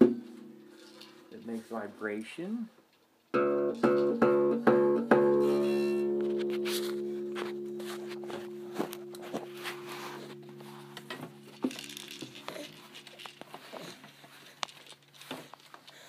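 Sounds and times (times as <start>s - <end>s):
acoustic guitar strings ringing: 3.4s - 12.9s.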